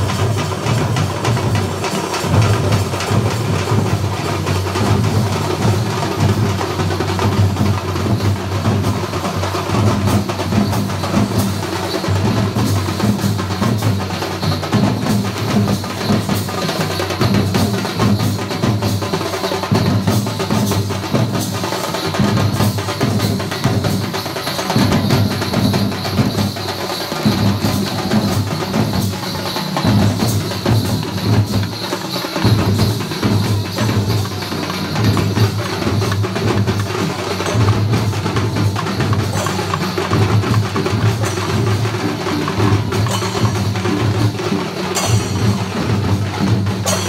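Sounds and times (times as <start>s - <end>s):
drums beaten fast: 0.0s - 47.0s.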